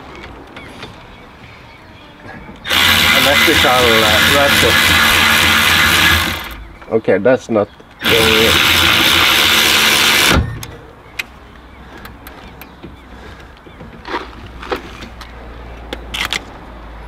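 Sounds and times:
power ratchet whirring: 2.6 - 6.8, 8.0 - 10.7.

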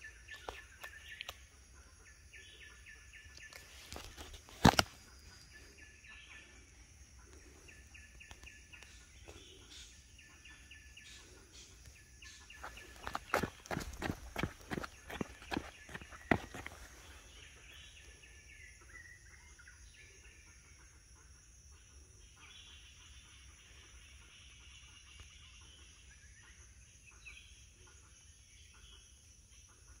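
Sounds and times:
distant birds calling: 2.2 - 18.2.

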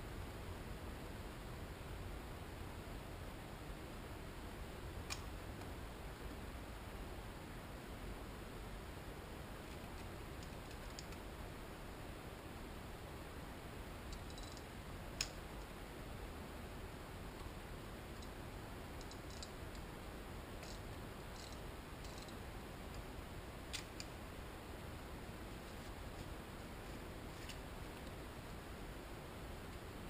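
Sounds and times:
steady low hiss: 0.0 - 30.0
metallic clicks of engine parts: 21.4 - 22.4.

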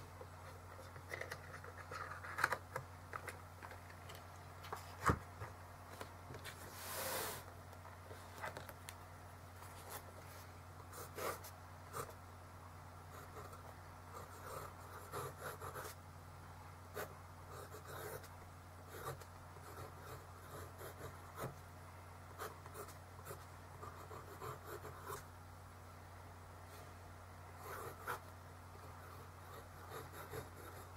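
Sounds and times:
steady low hum: 0.0 - 30.9
pen nib scratching on paper: 28.8 - 30.9.

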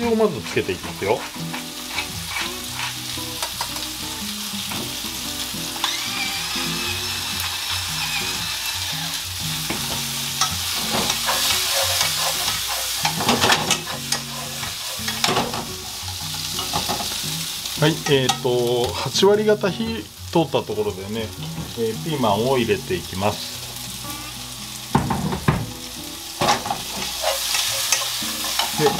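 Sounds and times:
food sizzling in a frying pan: 0.0 - 28.9
chopsticks scraping and clicking on pan: 0.8 - 4.0, 10.4 - 17.1, 26.5 - 28.9.

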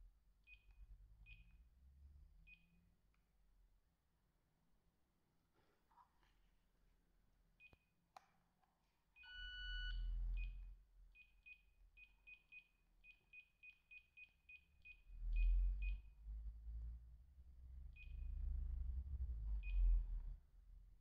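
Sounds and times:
short high keypad beeps: 9.3 - 10.0.

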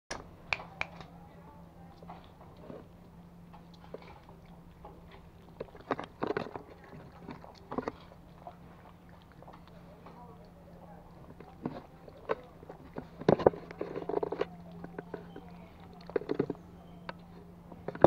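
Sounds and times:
puppies lapping water: 1.8 - 18.0
metal bowl set on wooden floor: 11.2 - 18.0.

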